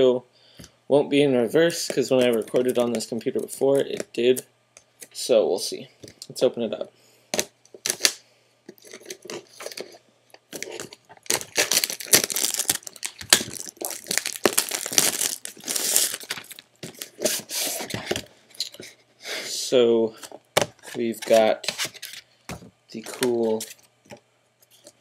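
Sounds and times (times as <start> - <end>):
plastic wrap crinkling: 8.8 - 17.6
plastic wrap snapping: 10.5 - 17.2.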